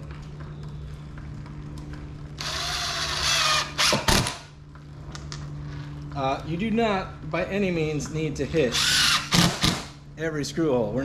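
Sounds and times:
impact driver driving screw: 8.8 - 9.9.

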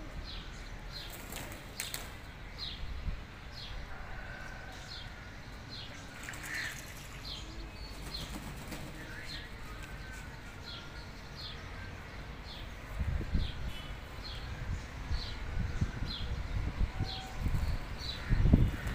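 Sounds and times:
pigeons flapping wings in water: 6.1 - 9.1.

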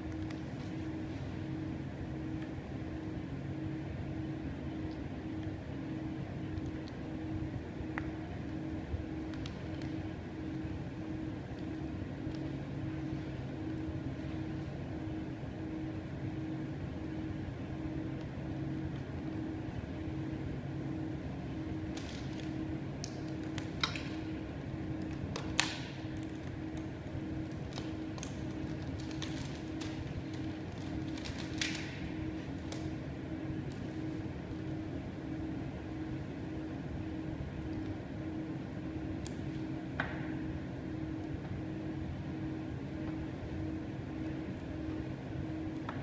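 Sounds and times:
steady low hum: 0.0 - 46.0
plastic film crackling: 25.0 - 33.0.

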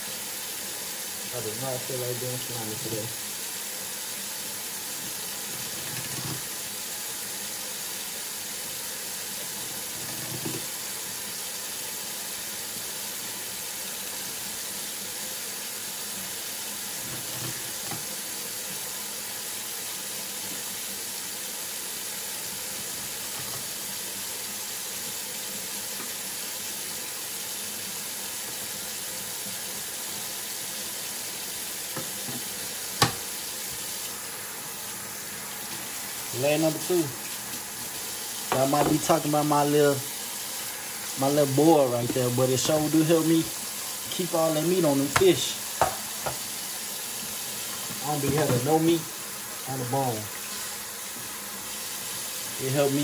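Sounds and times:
faucet running into metal sink: 1.2 - 4.0, 4.7 - 7.3, 9.3 - 11.4, 16.7 - 18.9, 22.4 - 53.0.

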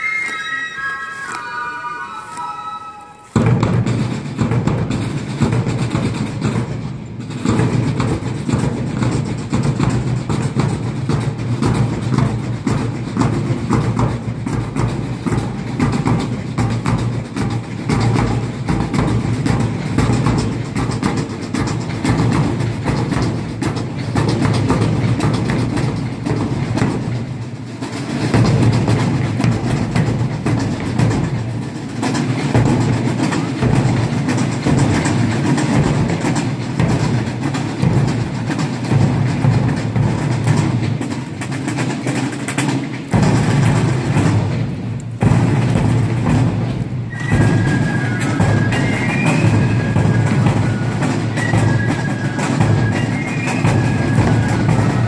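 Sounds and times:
side drums: 0.0 - 55.0
bass drum: 43.0 - 47.8.

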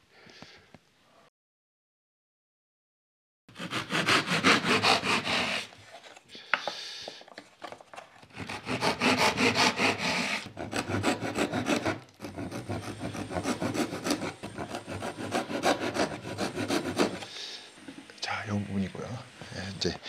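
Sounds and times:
hand saw cutting wood: 3.5 - 5.8, 8.3 - 17.3.

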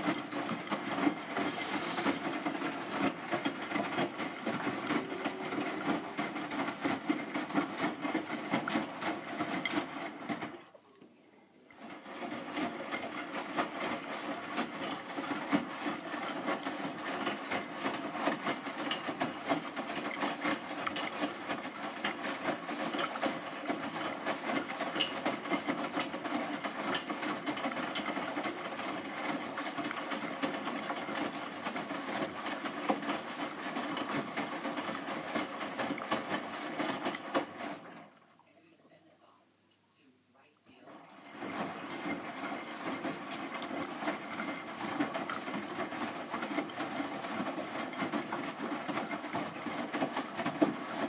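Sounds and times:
washing machine sloshing: 0.0 - 39.0, 40.7 - 51.0.

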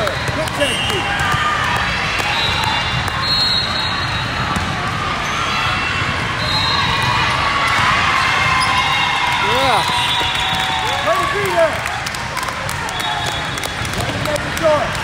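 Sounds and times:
volleyballs struck and bouncing: 0.0 - 3.2.

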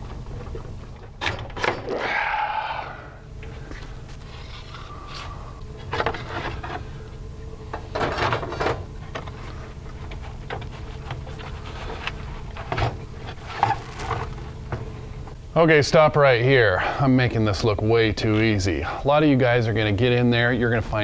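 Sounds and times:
faint steady hum: 0.0 - 21.0
heater core scraping and knocking: 5.8 - 7.0, 7.7 - 15.4.

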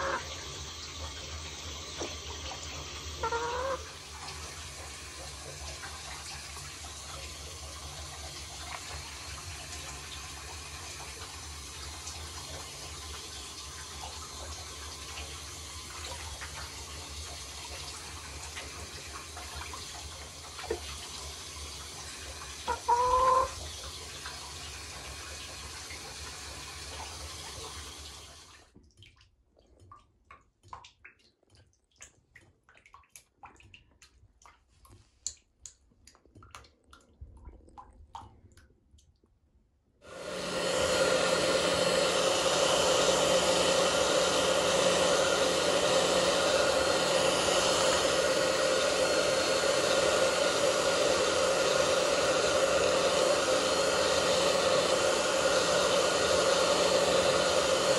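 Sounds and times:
hair dryer running: 0.0 - 0.7, 22.7 - 23.5, 40.1 - 57.9
tap water running into sink: 0.0 - 39.1, 40.1 - 57.9
drips and splashes in water: 28.5 - 39.5.

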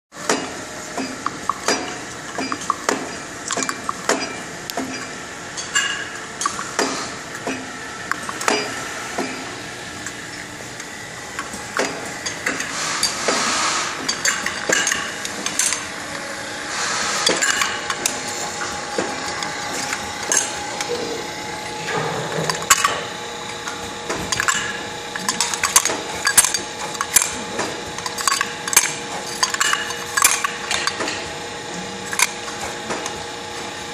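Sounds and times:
machine hum: 0.2 - 33.9
metal parts clinking: 14.1 - 15.8, 24.3 - 27.4, 28.0 - 31.2.

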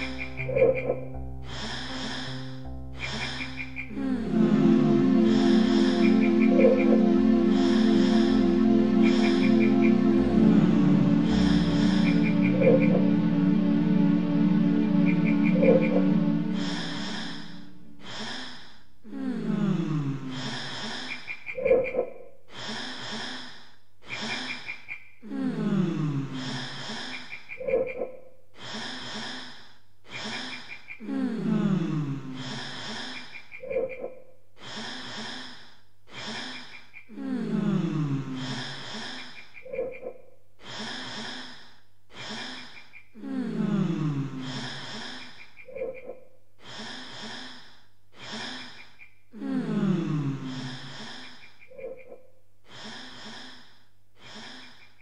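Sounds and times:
experimental music loop: 1.9 - 18.0.

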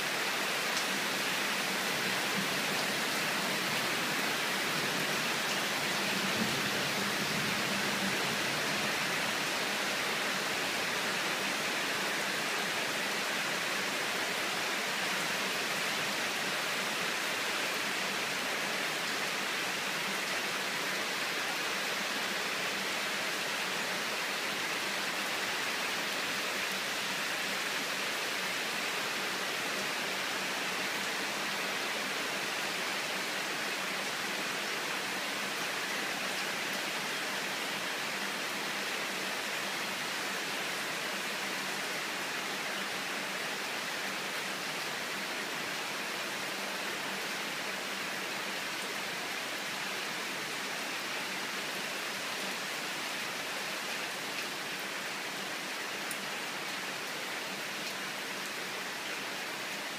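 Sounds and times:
heavy rain pouring: 0.0 - 59.9.

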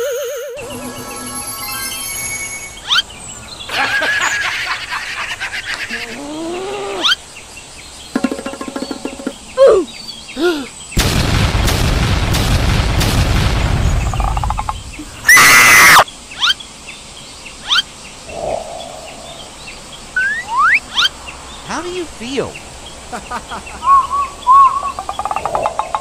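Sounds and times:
cartoon squeaky cries: 0.0 - 0.8, 15.3 - 16.6
birds chirping: 0.6 - 11.2, 13.6 - 26.0
cartoon gunfire: 11.0 - 14.4
loud shrill cry: 15.3 - 16.0.

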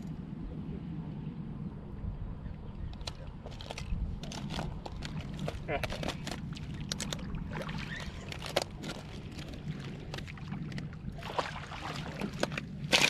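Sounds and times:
crunches and clicks: 2.9 - 10.9.

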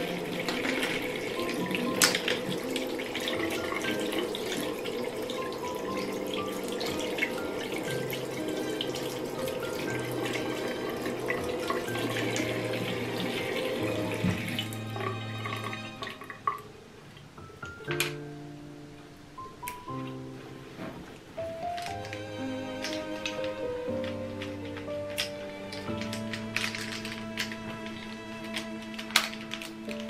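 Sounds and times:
tap running into a sink: 0.0 - 16.6.

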